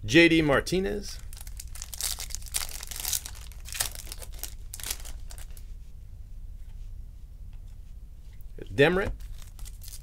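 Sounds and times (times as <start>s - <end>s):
steady low hum: 0.0s - 10.0s
cards rustling: 1.3s - 5.6s, 9.2s - 10.0s
foil wrapper crinkling and tearing: 1.3s - 5.6s, 9.2s - 10.0s.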